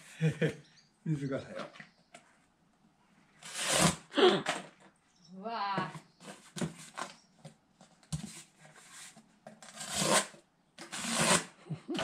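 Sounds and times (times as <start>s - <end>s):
knife cutting cardboard: 3.4s - 4.1s, 8.2s - 12.0s.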